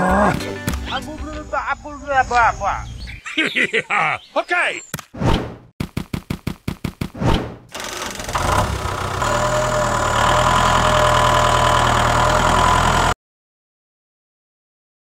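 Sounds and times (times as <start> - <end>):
brief swish: 5.1 - 5.6, 7.2 - 7.6
tractor engine cranking and running: 7.7 - 13.2.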